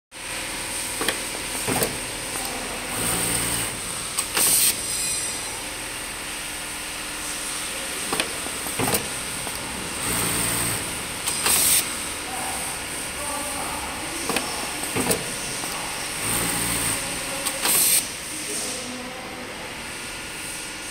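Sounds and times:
sewing machine hum: 0:01.2 - 0:04.9, 0:08.3 - 0:13.1, 0:14.6 - 0:18.0
motor drone: 0:08.7 - 0:12.2.

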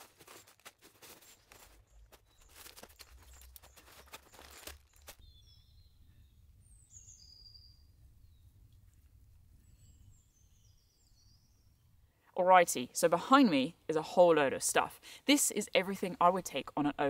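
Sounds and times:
nylon sacks rustling: 0:00.0 - 0:05.2
faint bird chirps: 0:01.3 - 0:12.1.

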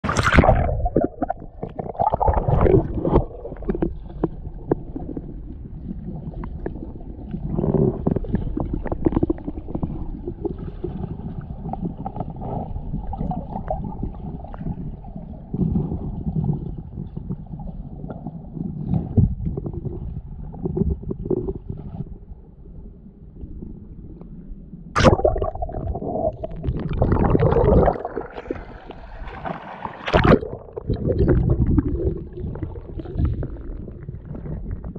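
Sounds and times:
choppy water splashing: 0:00.0 - 0:22.1, 0:25.0 - 0:34.9
underwater rumbling and gurgling: 0:00.0 - 0:34.9.

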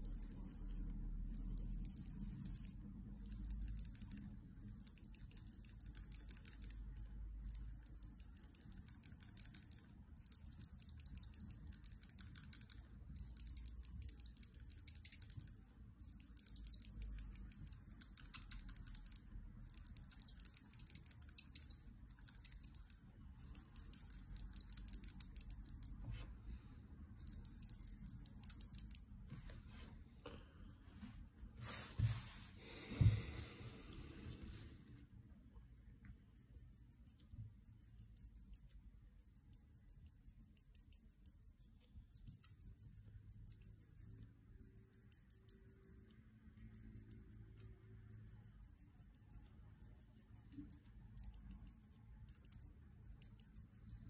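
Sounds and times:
marker scratching on paper: 0:00.0 - 0:26.3, 0:27.1 - 0:33.2, 0:36.2 - 0:54.0.

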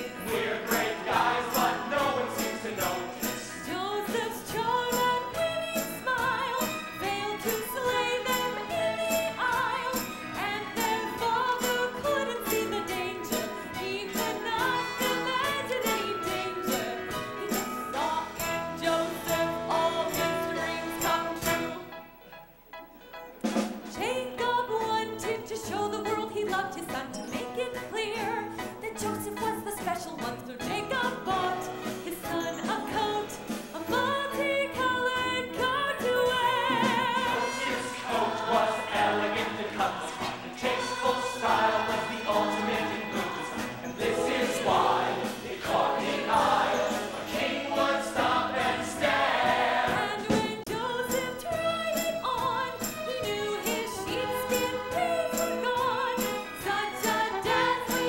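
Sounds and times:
ensemble chorus singing: 0:00.0 - 0:05.4, 0:36.3 - 0:50.7, 0:56.8 - 0:58.0
instrumental accompaniment: 0:00.0 - 0:58.0.

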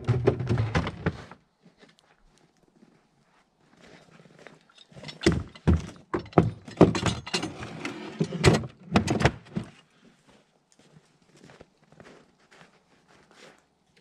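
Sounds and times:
tools thudding against wood: 0:05.0 - 0:07.6.

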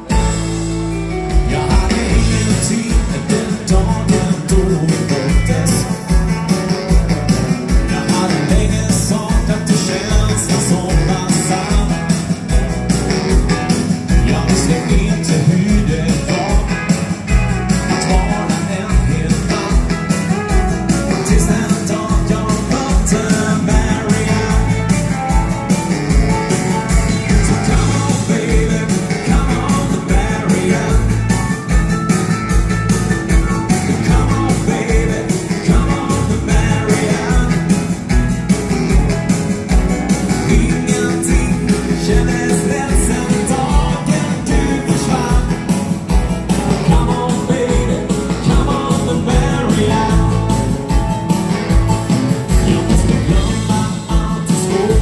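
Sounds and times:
drum kit beat: 0:00.0 - 0:55.0
live rock band playing: 0:00.0 - 0:55.0
baritone saxophone: 0:05.0 - 0:08.8.

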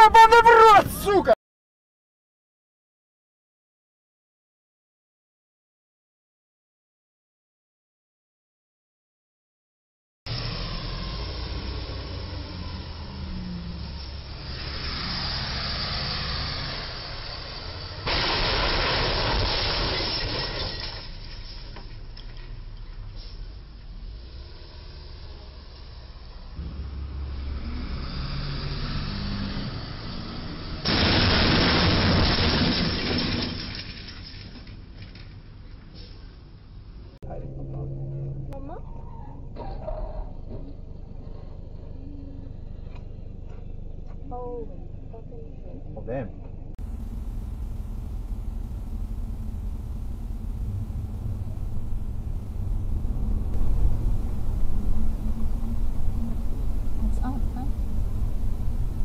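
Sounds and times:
car engine and road noise: 0:00.0 - 0:01.4, 0:10.3 - 0:32.2, 0:34.7 - 0:45.2, 0:46.0 - 0:59.0
truck crashing into bridge: 0:17.9 - 0:22.5, 0:30.8 - 0:35.2
truck engine running: 0:46.8 - 0:59.0.

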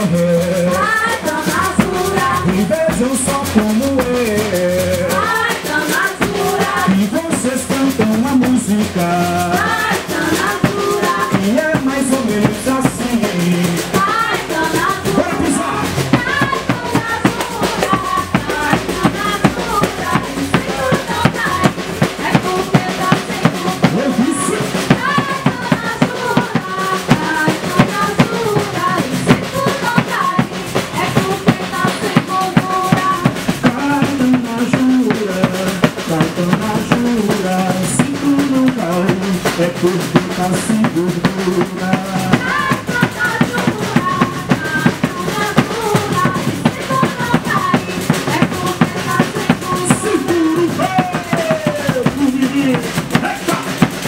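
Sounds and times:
bass drum beaten with sticks: 0:00.0 - 0:54.0
drum kit: 0:00.0 - 0:54.0
metal shaker: 0:00.0 - 0:54.0.

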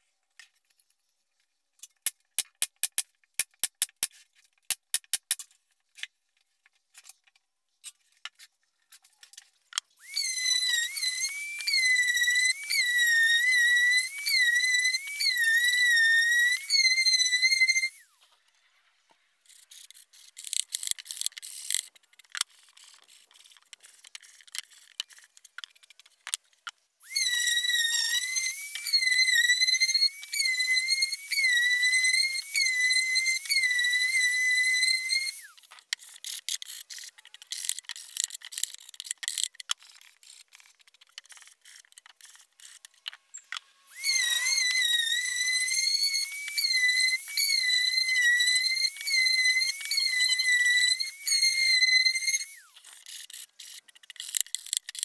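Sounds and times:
orbit sander whining on plywood: 0:10.0 - 0:18.0, 0:27.1 - 0:35.5, 0:43.8 - 0:52.7.

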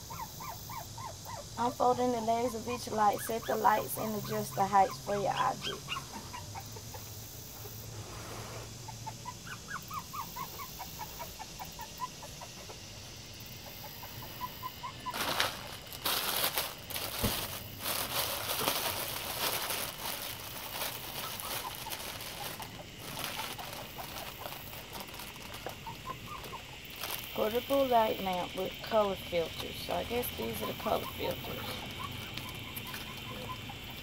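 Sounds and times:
high animal cries: 0:02.9 - 0:07.0, 0:08.9 - 0:12.8
plastic packaging crinkling: 0:15.1 - 0:28.0.

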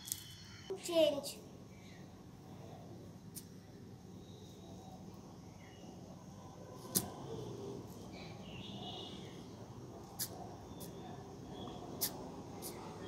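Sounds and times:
faint high chirps: 0:00.0 - 0:00.8, 0:04.0 - 0:13.0
low outdoor background noise: 0:00.0 - 0:13.0.

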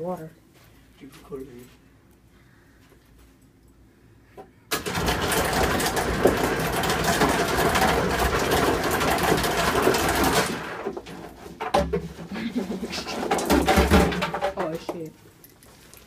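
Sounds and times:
ice machine dispensing ice: 0:04.7 - 0:12.0
ice cubes clattering: 0:04.8 - 0:11.1.

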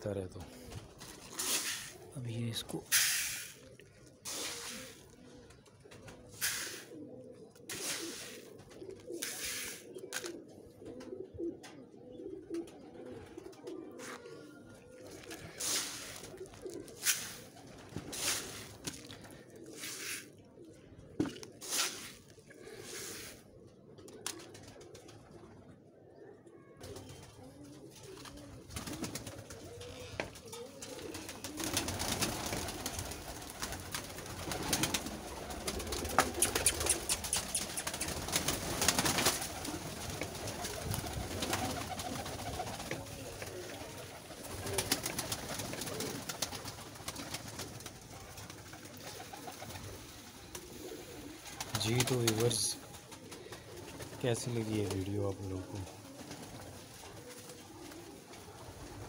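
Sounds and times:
pigeons cooing: 0:00.0 - 0:59.0
pigeons pecking clicks: 0:07.6 - 0:11.2, 0:28.0 - 0:52.5.

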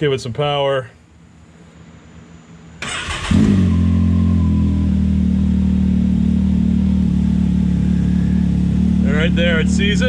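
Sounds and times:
engine idling: 0:02.8 - 0:10.0.

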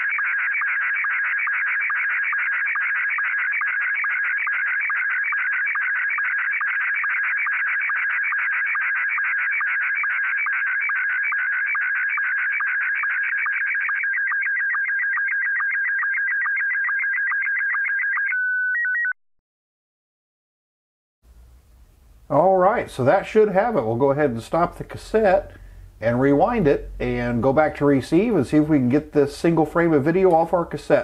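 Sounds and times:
steady tone: 0:22.6 - 0:30.8.

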